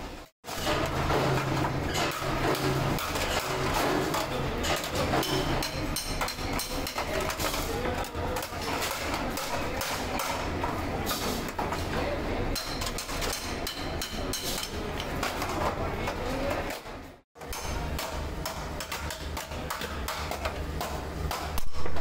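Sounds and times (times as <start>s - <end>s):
hammer striking sheet metal: 0.5s - 7.7s, 17.4s - 22.0s.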